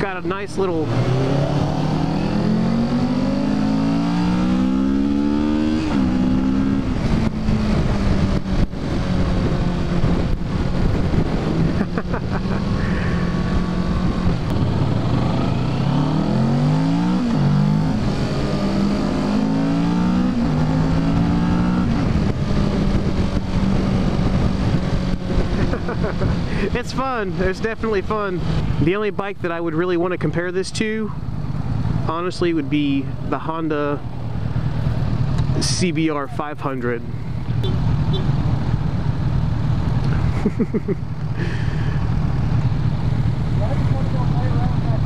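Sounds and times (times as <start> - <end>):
motorcycle engine accelerating: 0.0 - 28.8, 31.1 - 45.0
wind rush on microphone: 5.5 - 16.5, 20.1 - 28.8.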